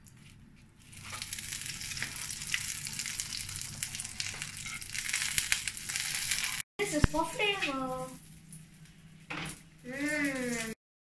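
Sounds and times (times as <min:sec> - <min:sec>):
butter sizzling in a frying pan: 0:01.0 - 0:06.6.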